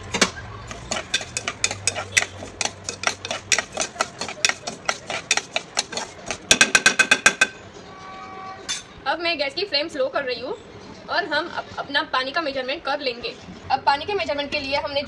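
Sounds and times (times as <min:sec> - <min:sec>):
metal spoon scraping a pot: 0:00.7 - 0:07.6.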